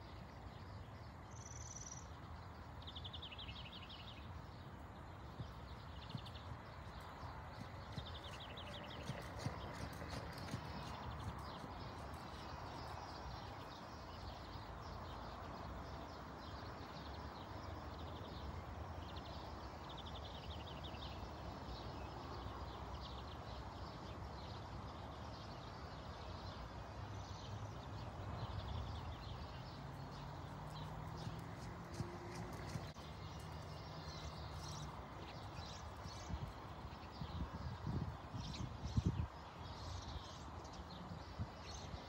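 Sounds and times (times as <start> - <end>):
birds chirping: 0.0 - 42.0
horse hoofbeats on dirt: 5.2 - 13.1, 29.6 - 36.6.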